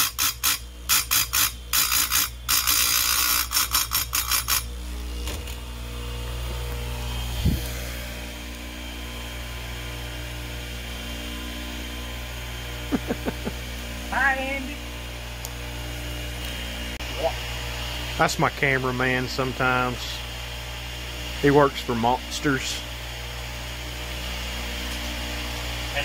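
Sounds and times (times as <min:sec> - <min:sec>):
grinder wheel grinding chain: 0:00.0 - 0:05.6
steady low hum: 0:00.0 - 0:26.0.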